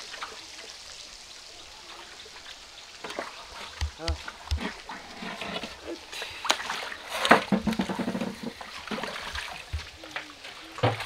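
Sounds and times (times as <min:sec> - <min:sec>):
water splashing and sloshing: 0:00.0 - 0:11.0.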